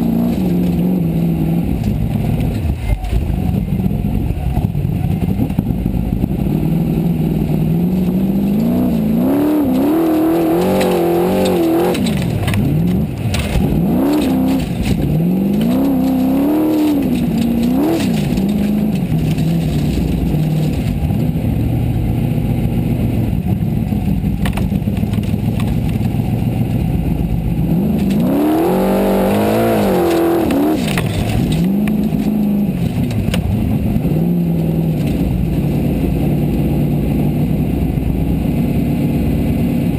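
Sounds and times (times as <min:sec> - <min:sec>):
buggy engine revving: 0:00.0 - 0:39.9
knocks and rattles: 0:07.8 - 0:21.1, 0:27.8 - 0:33.9.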